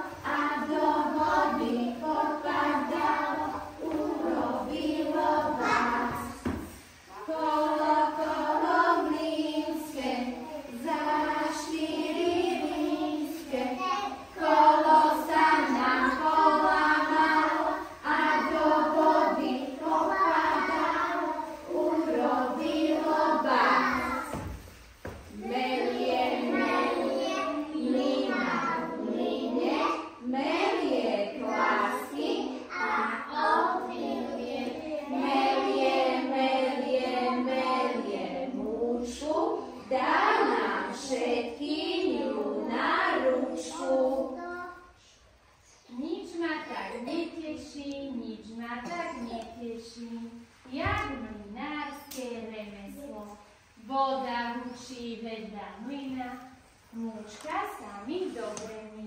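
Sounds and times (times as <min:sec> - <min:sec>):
children singing: 0:00.0 - 0:24.7, 0:25.3 - 0:45.0.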